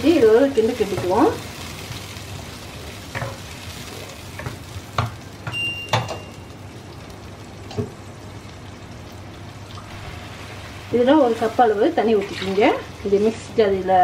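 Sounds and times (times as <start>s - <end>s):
wooden spatula knocking a pan: 4.4s - 6.2s
paste sizzling in hot oil: 9.3s - 14.0s.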